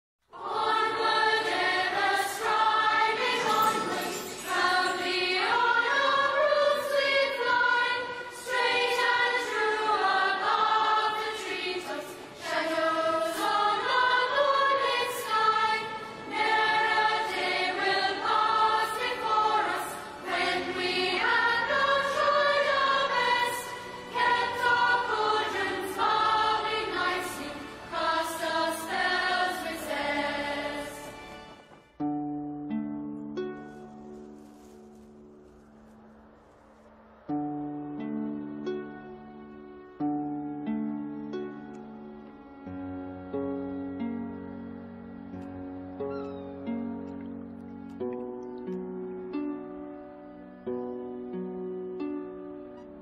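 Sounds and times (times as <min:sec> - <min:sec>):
choir singing sustained notes: 0:00.3 - 0:53.0.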